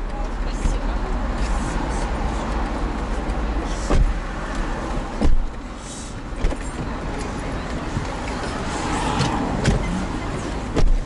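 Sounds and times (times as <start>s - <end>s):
city traffic noise: 0.0s - 11.0s
car door shutting: 3.8s - 4.2s, 5.0s - 5.6s, 6.4s - 7.0s, 9.0s - 11.0s.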